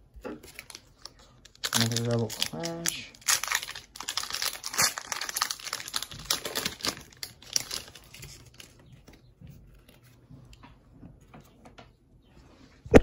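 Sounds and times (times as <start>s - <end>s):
cards rustling and clicking: 0.2s - 10.2s
foil wrapper crinkling: 0.4s - 9.2s.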